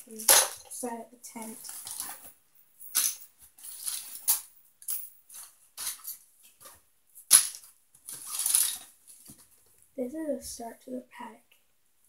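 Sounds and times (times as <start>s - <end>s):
wooden craft pieces clattering: 7.3s - 8.9s.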